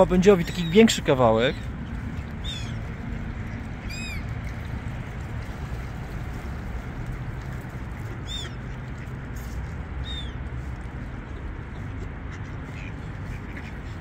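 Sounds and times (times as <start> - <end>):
gulls calling: 0.0 - 4.7, 8.0 - 9.1.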